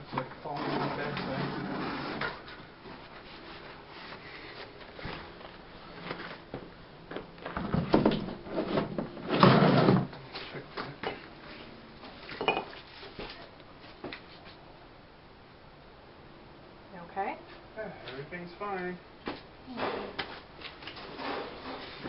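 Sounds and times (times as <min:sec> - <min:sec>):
wooden knocks and scraping clatters: 0:06.0 - 0:10.2.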